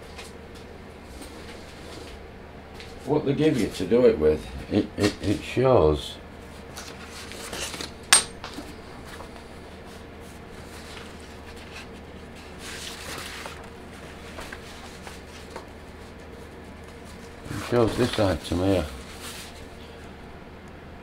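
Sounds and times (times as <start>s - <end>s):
steady low hum: 0.0s - 21.0s
handling metal pieces: 8.1s - 8.4s
metal clink: 8.2s - 8.4s.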